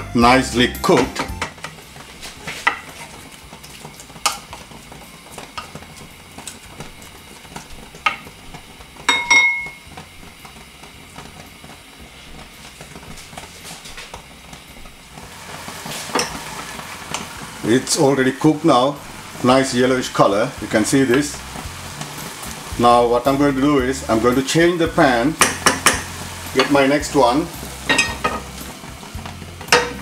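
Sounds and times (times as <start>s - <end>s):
cabbage sizzling: 0.0s - 30.0s
wooden spoon knocking pan: 0.8s - 3.1s, 7.9s - 8.3s, 9.0s - 9.8s, 25.3s - 28.6s, 29.6s - 30.0s.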